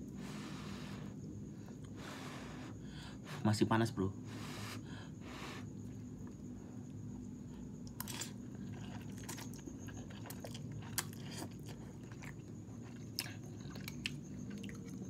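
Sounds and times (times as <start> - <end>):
steady low hum: 0.0 - 15.0
person chewing: 7.8 - 15.0.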